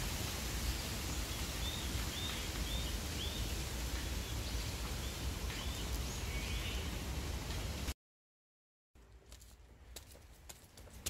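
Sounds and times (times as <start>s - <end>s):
outdoor background hiss: 0.0s - 7.9s
birds chirping: 0.8s - 7.1s.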